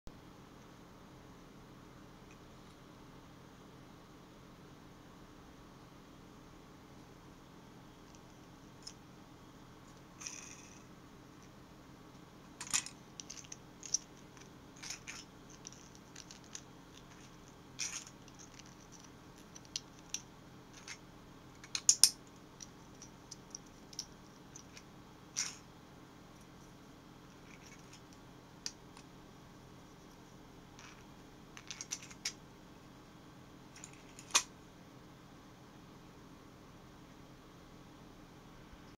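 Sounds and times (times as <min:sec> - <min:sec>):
faint steady hum: 0:00.1 - 0:38.9.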